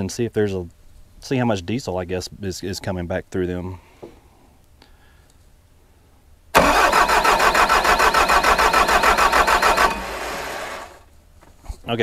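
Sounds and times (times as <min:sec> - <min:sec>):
diesel engine cranking on starter: 0:06.6 - 0:11.0.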